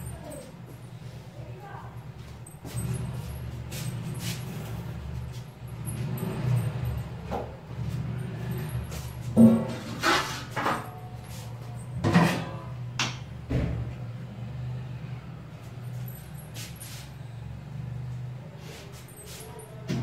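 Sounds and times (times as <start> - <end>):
kitchen utensils and cupboards clattering: 2.4 - 14.0, 18.6 - 20.0.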